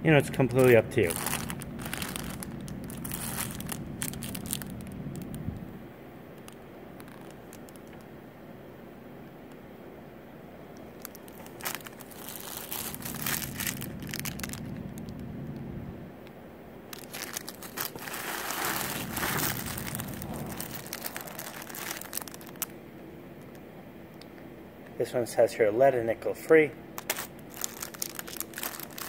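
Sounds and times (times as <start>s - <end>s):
plastic bags crinkling: 0.1s - 5.6s, 6.4s - 8.0s, 11.0s - 15.3s, 16.9s - 22.7s, 27.0s - 29.0s.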